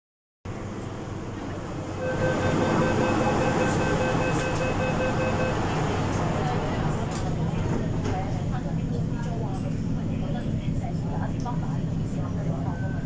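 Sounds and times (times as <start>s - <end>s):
train car hum: 0.5s - 13.0s
door-closing warning beeps: 2.0s - 5.7s.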